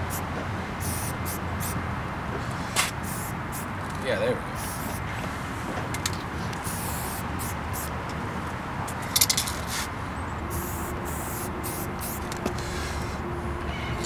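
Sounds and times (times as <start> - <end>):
spray paint can hissing: 0.0 - 0.2, 0.8 - 1.8, 2.4 - 3.7, 4.6 - 5.1, 6.0 - 7.9, 10.5 - 13.2
low background rumble: 10.0 - 14.0.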